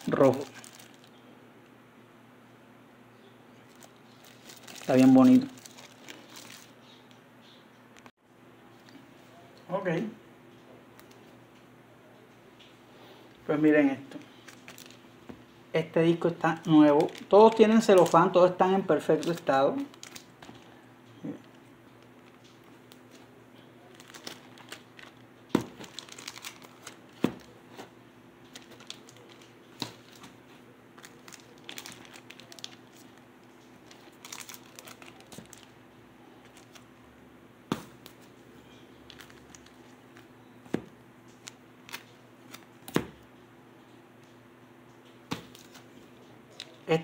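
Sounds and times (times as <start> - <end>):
cellophane crinkling: 0.0 - 1.2, 3.6 - 6.8, 14.2 - 15.0, 16.5 - 20.8, 21.4 - 35.8, 36.4 - 37.0, 38.0 - 40.3
faint steady hum: 0.0 - 47.0.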